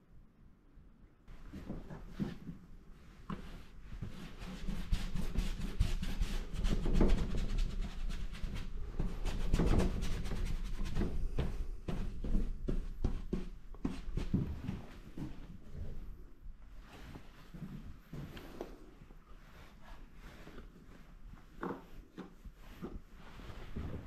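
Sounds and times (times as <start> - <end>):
paintbrush scrubbing on paper: 3.5 - 11.4.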